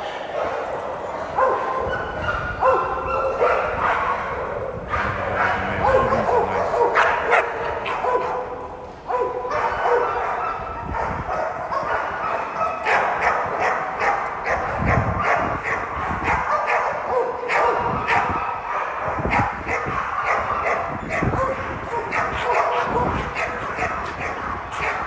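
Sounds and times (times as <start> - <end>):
dogs barking sharply: 0.0 - 25.0
dogs yipping: 0.0 - 25.0.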